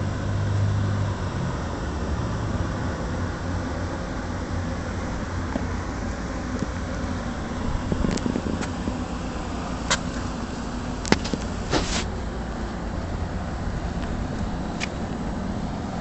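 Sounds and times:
low outdoor hum: 0:00.0 - 0:16.0.

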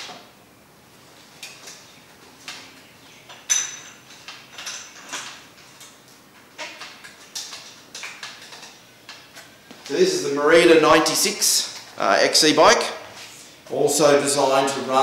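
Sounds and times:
metallic clicks and knocks on bike: 0:03.3 - 0:09.5.

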